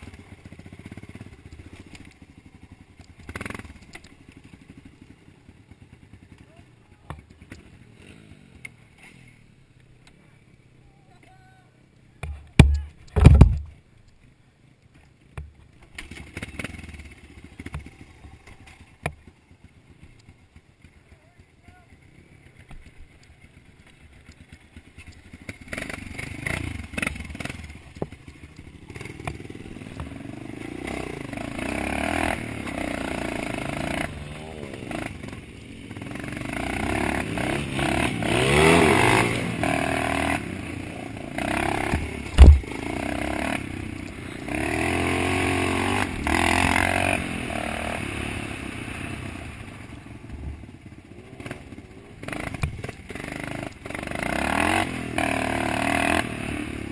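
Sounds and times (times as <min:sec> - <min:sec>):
dirt bike engine revving: 0:00.0 - 0:06.4, 0:23.6 - 0:56.9
sharp knock: 0:12.2 - 0:13.7, 0:42.4 - 0:42.7.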